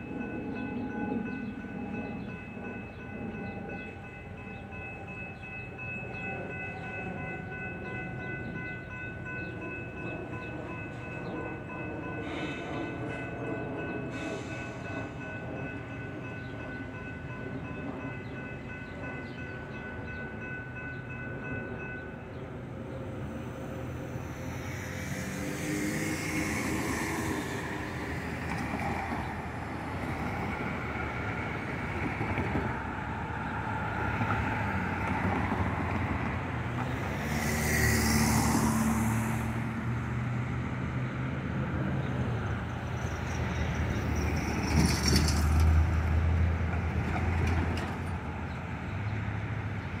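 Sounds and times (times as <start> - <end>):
cars and trucks driving past: 23.5 - 28.7, 32.3 - 43.0.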